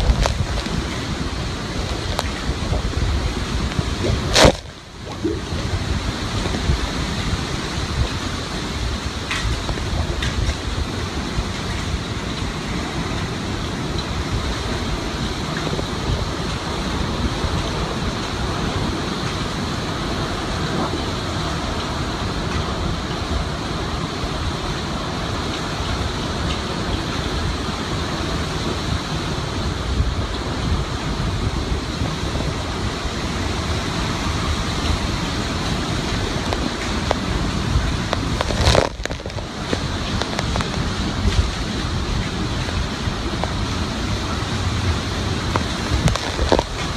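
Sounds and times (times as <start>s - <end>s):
sharp crackle: 0.0s - 12.0s, 34.7s - 46.9s
driving rain: 0.0s - 46.9s
strong wind: 0.0s - 46.9s
wind buffeting microphone: 0.0s - 46.9s.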